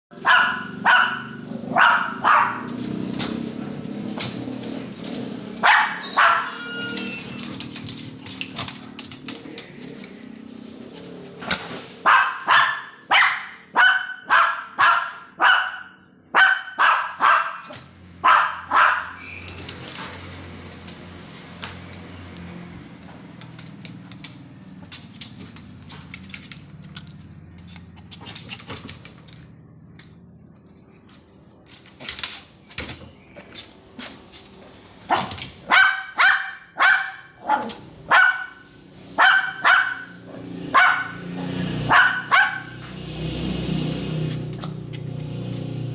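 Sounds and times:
small dog yapping: 5.6s - 7.5s, 16.4s - 20.1s, 39.2s - 42.8s.

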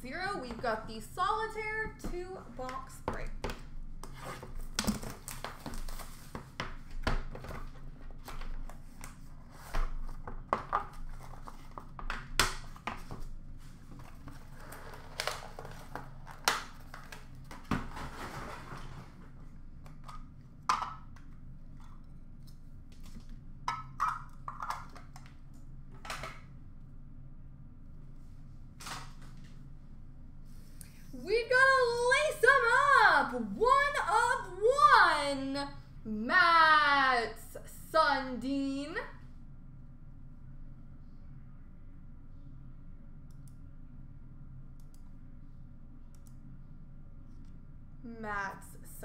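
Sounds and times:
packaging rustling and crinkling: 4.6s - 6.5s.

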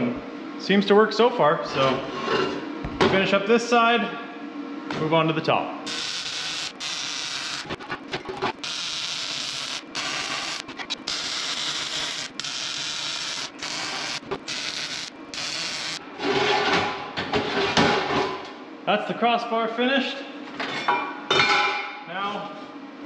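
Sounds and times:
welding arc crackling: 5.9s - 16.0s.

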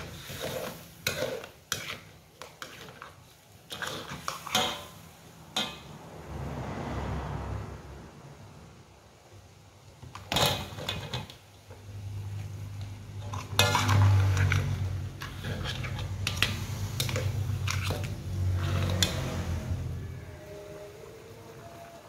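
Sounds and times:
metal ladle clanking in wok: 3.7s - 6.0s, 13.2s - 19.4s.

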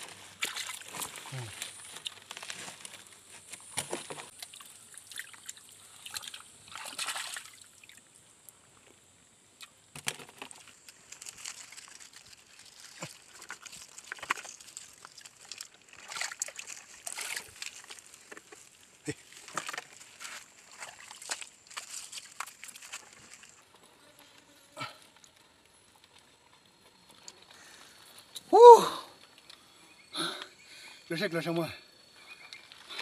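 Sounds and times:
hands splashing in shallow water: 5.1s - 7.7s.

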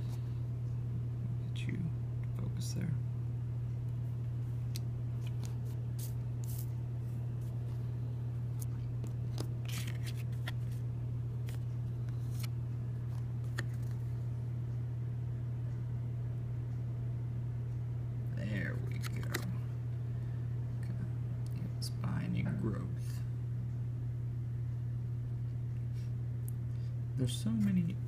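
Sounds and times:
low hum: 0.0s - 28.0s
cards and packaging crinkling: 8.6s - 10.8s.

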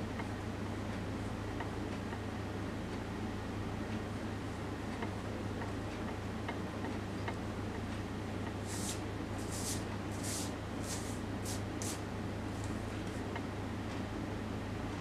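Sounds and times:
steady low hum: 0.0s - 15.0s
hand rubbing on paper: 8.6s - 12.0s.

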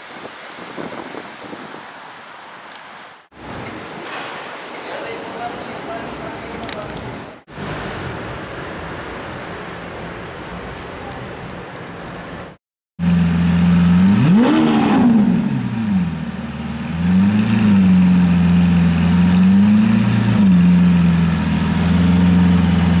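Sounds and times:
sports car engine idling and revving: 13.0s - 23.0s.

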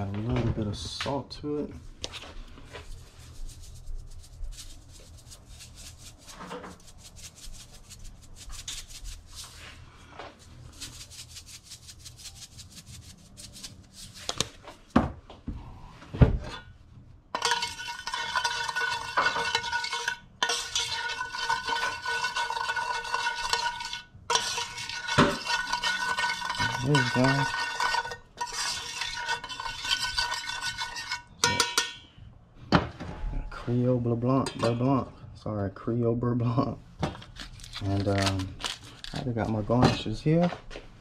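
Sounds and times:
spatula scraping metal pan: 17.3s - 32.0s
pan knocking: 17.4s - 32.1s.

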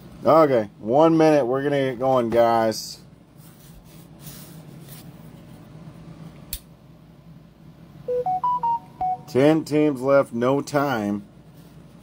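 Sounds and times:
faint steady hum: 0.0s - 12.0s
electronic jingle beeps: 8.1s - 9.4s.

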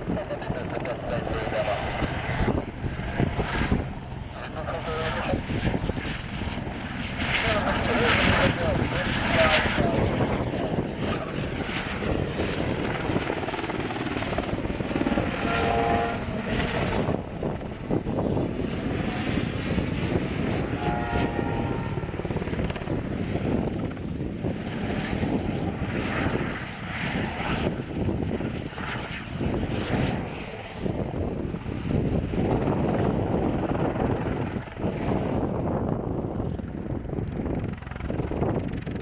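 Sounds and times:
helicopter rotor beating: 0.0s - 39.0s
brief whining tone: 20.8s - 22.0s.

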